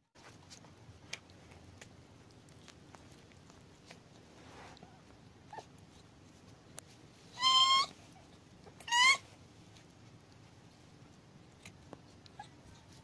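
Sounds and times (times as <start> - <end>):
kitten crying: 7.4 - 8.0, 8.8 - 9.2.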